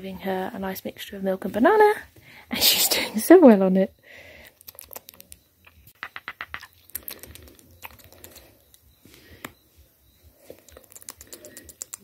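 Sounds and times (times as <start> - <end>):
monkey mouth wet clicks: 4.5 - 8.4, 10.7 - 12.0.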